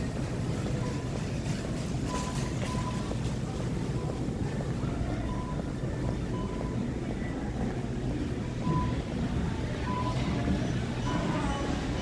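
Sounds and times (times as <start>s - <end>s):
shop background rumble: 0.0s - 12.0s
short beeps: 2.0s - 3.2s, 5.2s - 7.3s, 8.6s - 11.8s.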